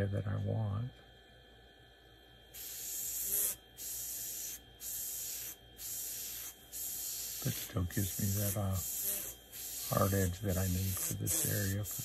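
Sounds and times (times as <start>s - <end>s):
airbrush spraying hiss: 2.6s - 12.0s.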